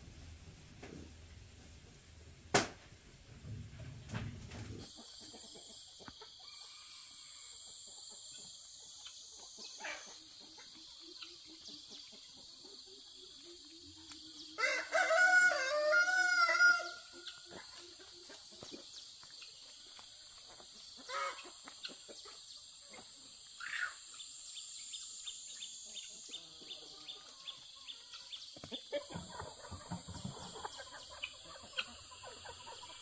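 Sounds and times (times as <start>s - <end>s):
rooster crowing: 14.6s - 17.1s.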